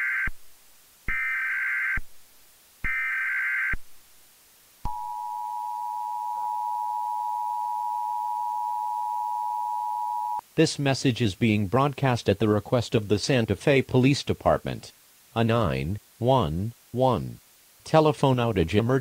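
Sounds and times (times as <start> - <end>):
screechy data tone bursts: 2.8 - 3.8
two-tone alert signal: 4.9 - 10.4.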